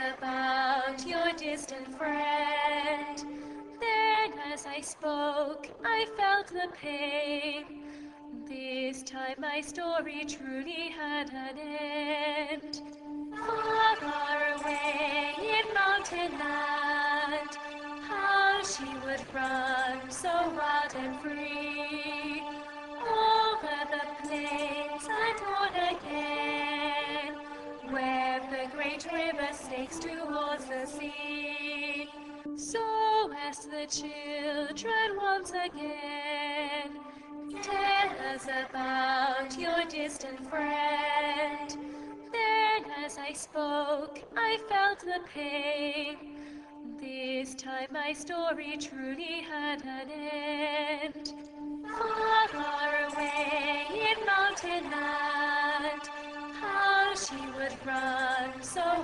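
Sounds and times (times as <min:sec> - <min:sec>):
person singing long wavering notes: 0:00.0 - 0:59.0.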